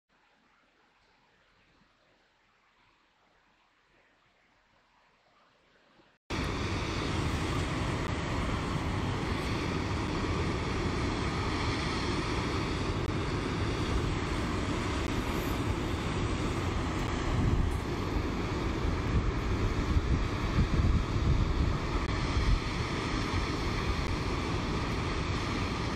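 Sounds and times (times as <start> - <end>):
wind buffeting microphone: 6.3 - 25.9.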